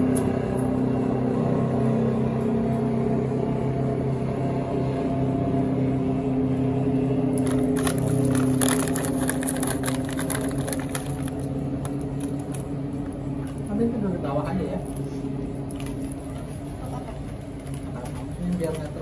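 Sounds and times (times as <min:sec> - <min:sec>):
low mechanical hum: 0:00.0 - 0:19.0
crinkly crackles: 0:07.4 - 0:13.7.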